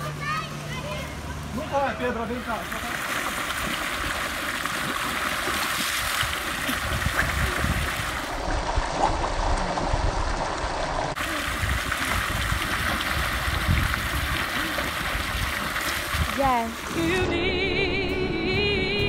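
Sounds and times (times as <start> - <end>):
water jet splashing into pool: 2.2 - 17.0.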